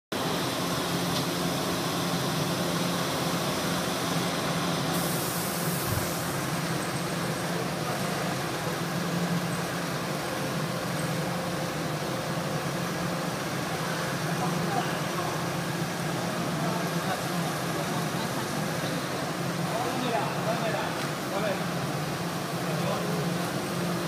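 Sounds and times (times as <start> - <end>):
machinery hum and hiss: 0.2 - 24.0
bright hiss: 4.9 - 8.3.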